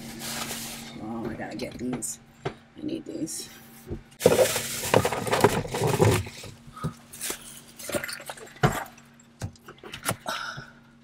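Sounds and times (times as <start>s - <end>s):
small items knocking and clinking: 4.2s - 6.5s.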